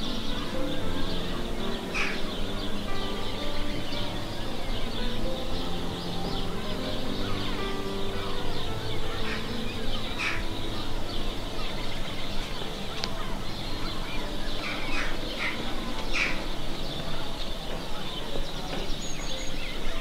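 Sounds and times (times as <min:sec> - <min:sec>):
birds harsh calls: 0:00.0 - 0:20.0
steady background hiss: 0:00.0 - 0:20.0.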